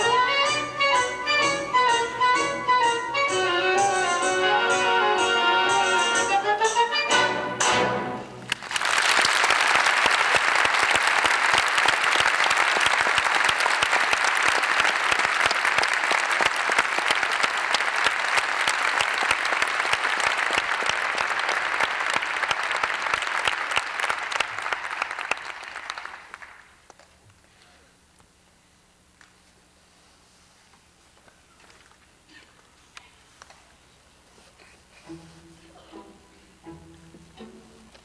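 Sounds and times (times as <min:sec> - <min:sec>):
audience applauding: 0:08.5 - 0:27.0.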